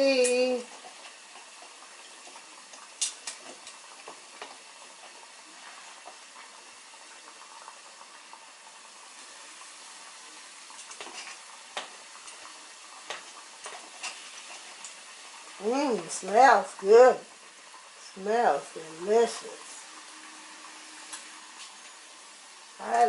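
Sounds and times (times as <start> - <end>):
deep-frying sizzle: 0.0 - 23.0.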